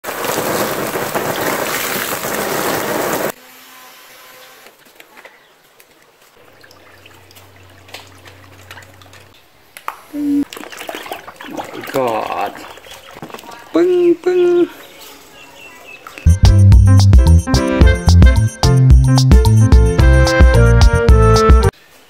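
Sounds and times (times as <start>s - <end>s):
water pouring into a pool: 0.0s - 3.4s, 6.4s - 9.4s, 10.4s - 13.6s
light water splashes: 4.8s - 13.8s.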